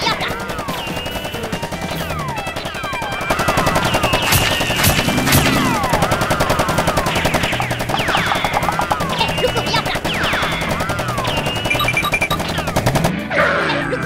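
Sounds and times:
rapid-fire gunfire: 0:00.0 - 0:13.6
laser-like zapping sweeps: 0:04.2 - 0:11.2.

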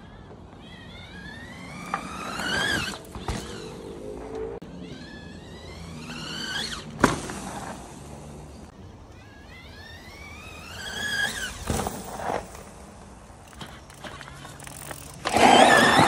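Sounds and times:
electric motor whine rising: 0:00.6 - 0:08.6, 0:09.3 - 0:11.7, 0:15.2 - 0:16.0.

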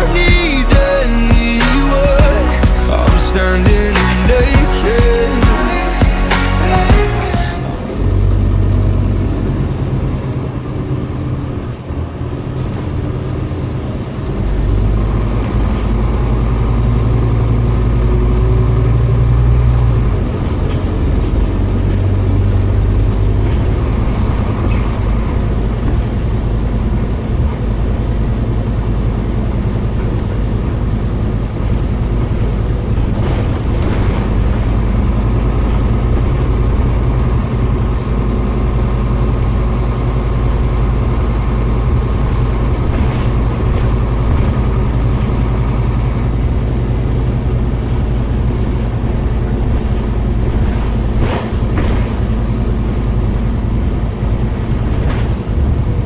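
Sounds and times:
bus engine running under load: 0:00.0 - 0:56.0
road noise: 0:00.0 - 0:56.0.

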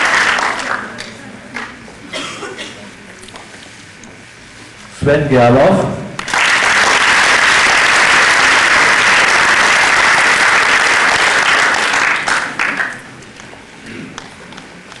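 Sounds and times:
audience applauding: 0:00.0 - 0:01.7, 0:06.2 - 0:13.1.

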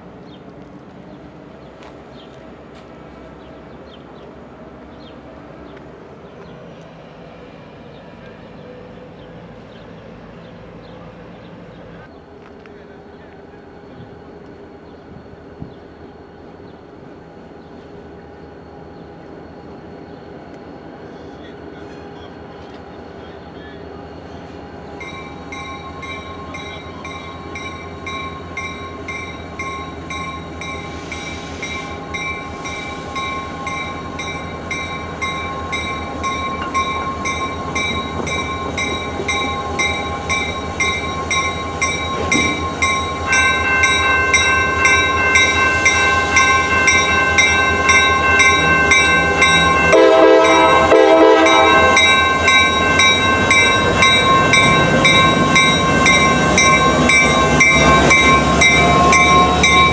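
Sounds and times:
diesel locomotive engine drone: 0:00.0 - 0:59.9
bell ringing: 0:33.2 - 0:50.9, 0:51.5 - 0:59.9
locomotive horn blast: 0:49.5 - 0:52.8.

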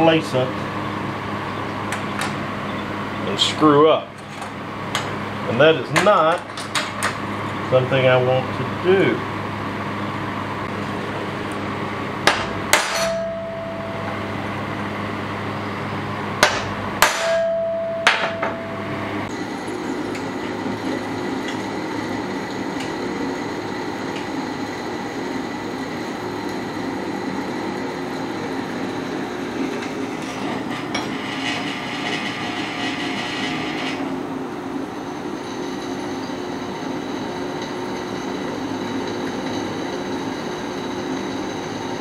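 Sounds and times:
steel plate ringing: 0:12.7 - 0:14.4, 0:17.0 - 0:19.0
hammer striking center punch: 0:16.4 - 0:18.6
drill press drilling steel: 0:25.0 - 0:34.1.

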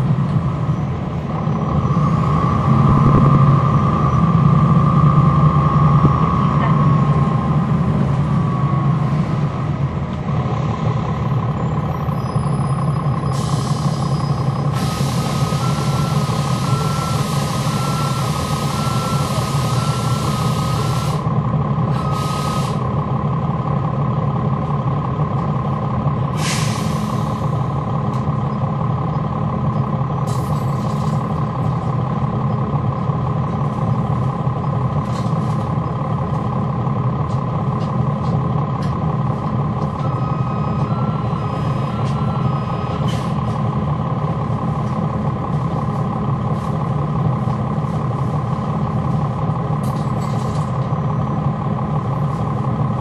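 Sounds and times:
engine fans: 0:00.0 - 0:12.0, 0:13.0 - 0:53.0
bus diesel engine running: 0:00.0 - 0:53.0
beeping tone: 0:01.8 - 0:07.1, 0:40.0 - 0:43.0.

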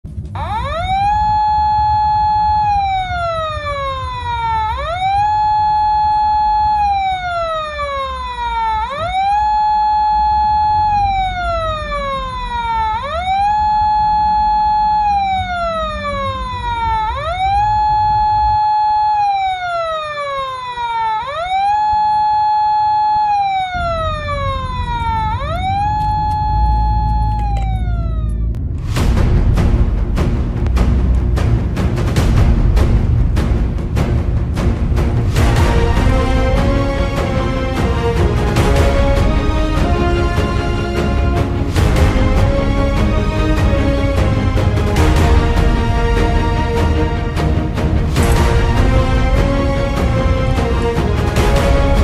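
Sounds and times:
police siren wailing: 0:00.2 - 0:28.6, 0:35.4 - 0:52.0
car rumbling on road: 0:09.0 - 0:19.0, 0:23.4 - 0:52.0.

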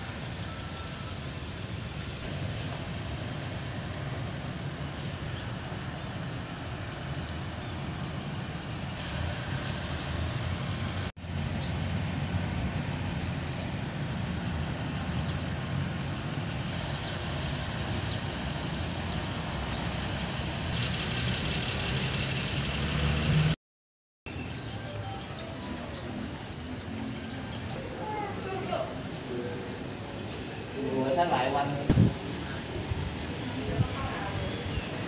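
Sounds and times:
faint high tone: 0:24.7 - 0:29.4.

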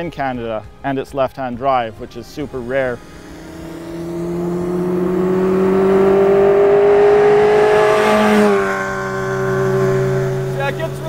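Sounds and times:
car driving by at high revs: 0:02.4 - 0:11.0.

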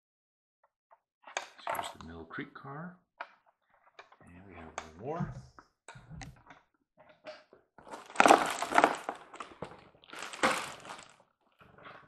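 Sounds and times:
cardboard rustling: 0:07.8 - 0:11.2
plastic wrapping crinkling: 0:07.8 - 0:11.2.

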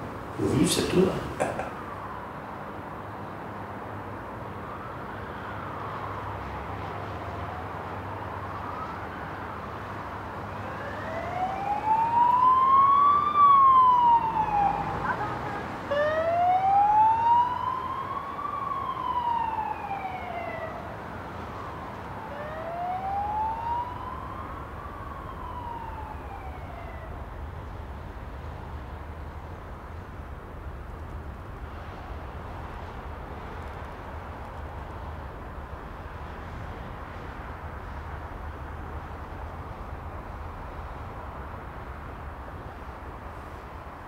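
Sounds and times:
siren wailing: 0:10.6 - 0:20.9, 0:21.6 - 0:27.2.

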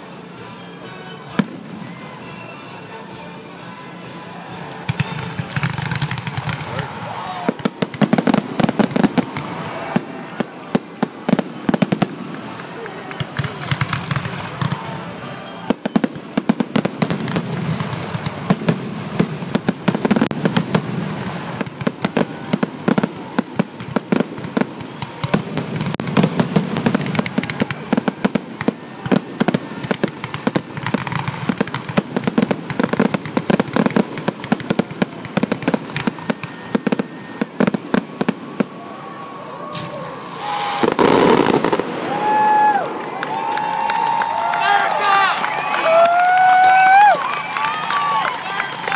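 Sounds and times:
fireworks booming and crackling: 0:04.9 - 0:39.1, 0:39.7 - 0:43.1.

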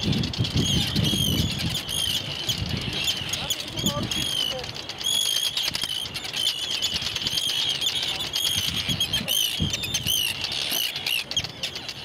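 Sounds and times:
seabirds calling: 0:00.0 - 0:12.0.

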